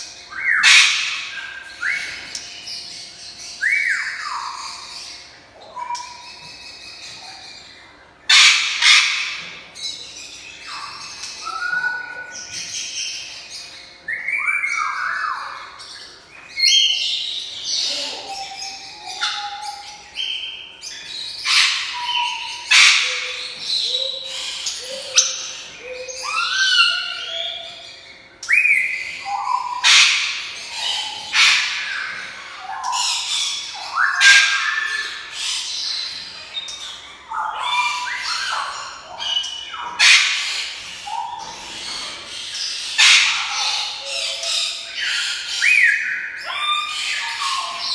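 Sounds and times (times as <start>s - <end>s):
parrot whistles and chirps: 0.3s - 2.3s, 43.0s - 47.9s
parrot squawks: 0.4s - 2.3s, 8.3s - 9.4s, 21.4s - 23.6s, 29.0s - 36.2s, 37.0s - 42.2s, 42.8s - 47.9s.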